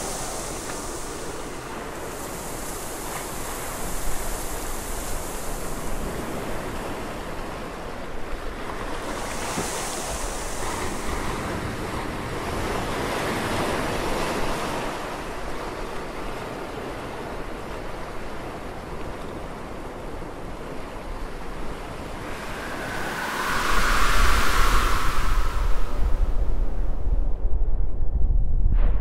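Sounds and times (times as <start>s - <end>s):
sea waves washing: 0.0s - 15.4s, 20.8s - 27.0s.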